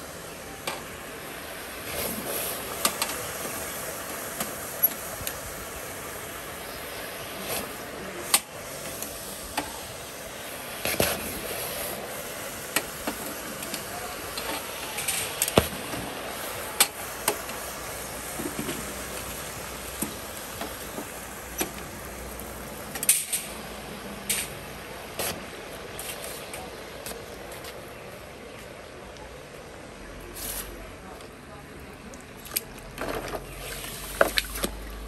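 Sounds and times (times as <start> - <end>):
steady hiss: 0.0 - 31.9
water splashing: 32.0 - 35.0.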